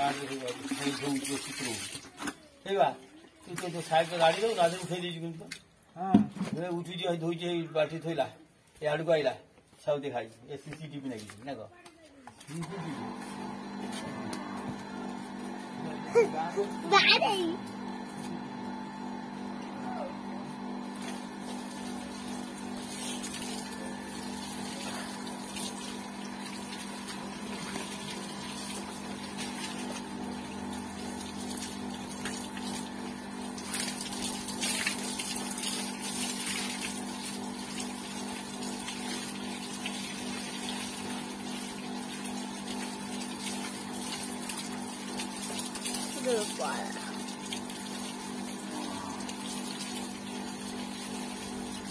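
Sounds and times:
hose water spraying and splashing: 0.0 - 2.8, 3.4 - 5.6, 20.8 - 51.9.

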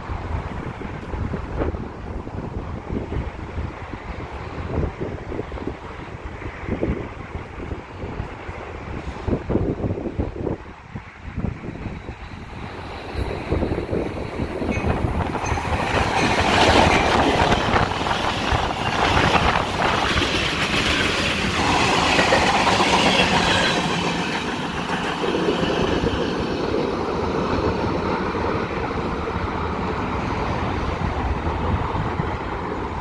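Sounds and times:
freight train passing: 0.0 - 33.0
steel wheels clattering on rails: 11.8 - 27.8.

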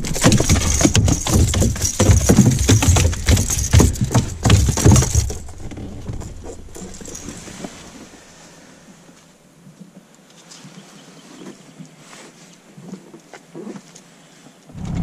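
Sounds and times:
fish thrashing against boat: 0.0 - 8.1.

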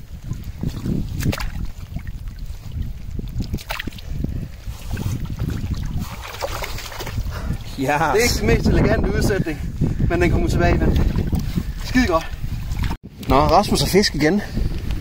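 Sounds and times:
water splashing: 0.0 - 8.5
wind buffeting microphone: 0.0 - 15.0.

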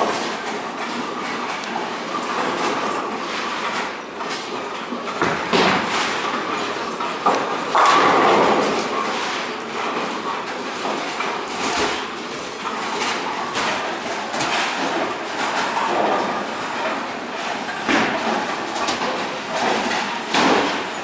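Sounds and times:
knocks and clatter: 0.0 - 21.0
bowling ball rolling on wooden lane: 5.0 - 10.4
bowling ball crashing into pins: 5.1 - 10.3, 17.8 - 21.0.

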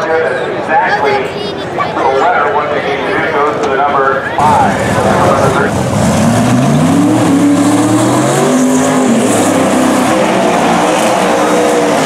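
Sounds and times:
drag car engine revving: 4.4 - 12.0.

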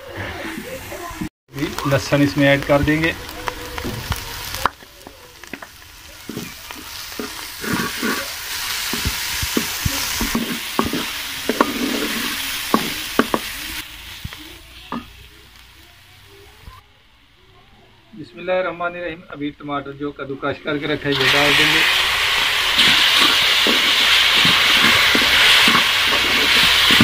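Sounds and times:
onion sizzling in hot fat: 0.0 - 17.4, 18.2 - 27.0
wooden spatula scraping a pot: 5.4 - 13.6, 22.8 - 27.0.

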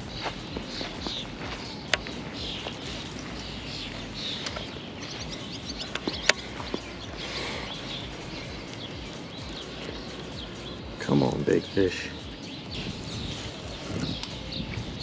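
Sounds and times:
outdoor background hum: 0.0 - 15.0
small birds chirping: 0.0 - 15.0
sharp clicks: 4.3 - 6.9.

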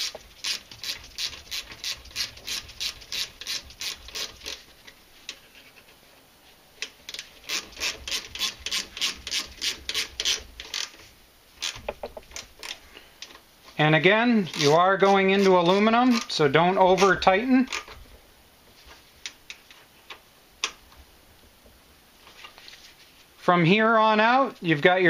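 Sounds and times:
ratchet wrench clicking: 0.0 - 4.6, 7.1 - 10.9, 14.5 - 14.8, 15.4 - 16.4.

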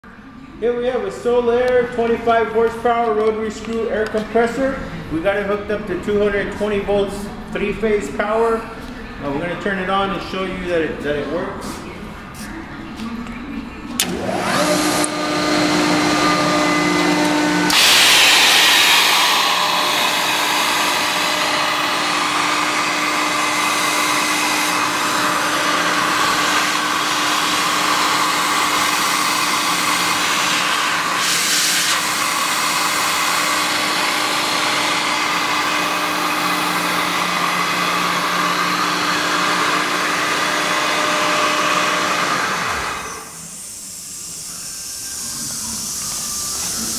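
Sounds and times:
air compressor running: 14.0 - 46.9
loud air hiss: 17.1 - 38.1, 42.6 - 46.9.

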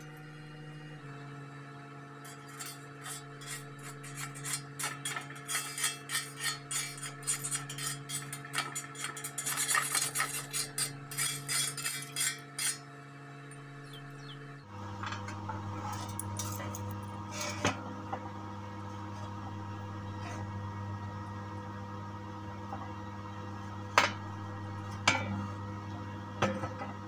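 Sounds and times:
metallic clinks and scrapes: 2.2 - 12.8, 15.8 - 17.6.

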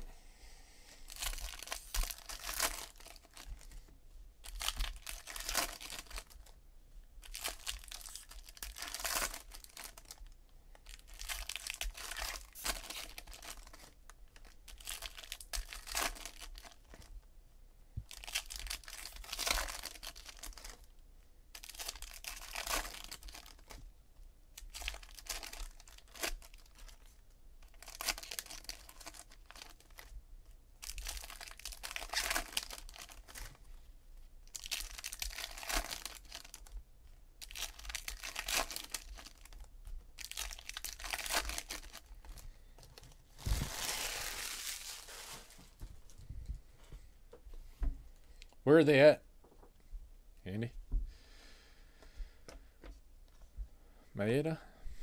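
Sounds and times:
foil wrappers tearing and crinkling: 1.1 - 3.5, 4.5 - 6.4, 7.2 - 10.2, 10.9 - 16.9, 18.1 - 20.8, 21.6 - 23.7, 24.6 - 30.1, 30.8 - 33.6, 34.5 - 36.7, 37.4 - 42.2, 43.4 - 45.7.

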